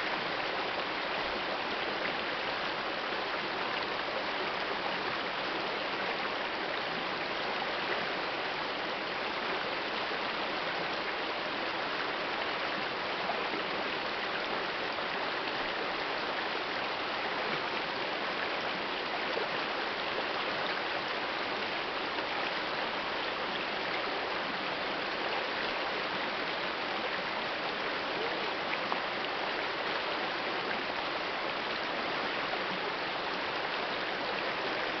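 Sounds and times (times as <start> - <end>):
river babbling over rocks: 0.0 - 35.0.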